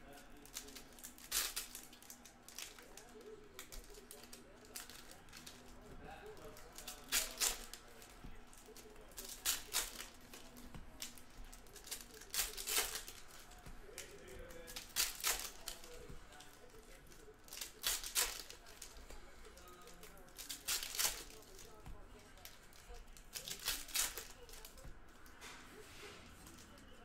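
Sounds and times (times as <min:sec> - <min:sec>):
card packs ripping open: 0:06.4 - 0:16.0, 0:17.2 - 0:19.0, 0:23.3 - 0:24.7.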